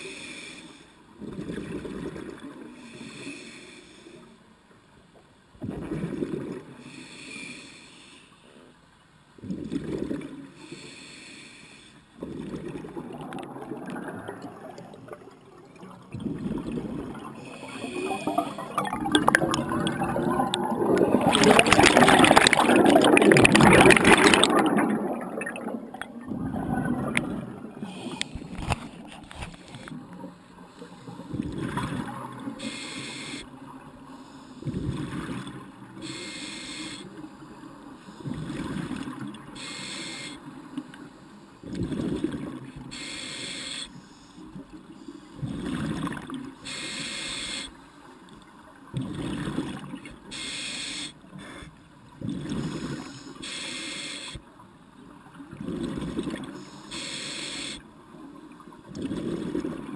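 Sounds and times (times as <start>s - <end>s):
regulator inhale hiss: 0.0s - 1.1s, 2.8s - 4.4s, 6.8s - 8.6s, 10.6s - 12.2s, 17.4s - 18.7s, 27.8s - 28.8s, 32.6s - 34.8s, 36.0s - 37.3s, 39.5s - 41.6s, 42.8s - 45.4s, 46.6s - 48.0s, 50.2s - 51.8s, 52.6s - 54.5s, 56.4s - 57.9s
gurgling exhaust bubbles: 18.4s - 27.8s.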